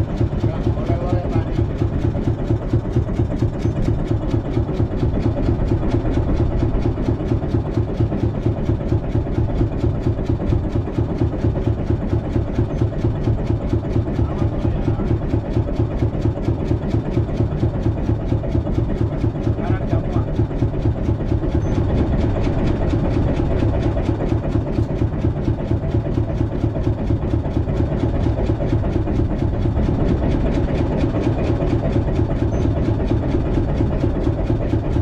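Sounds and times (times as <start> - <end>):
boat engine idling: 0.0 - 35.0.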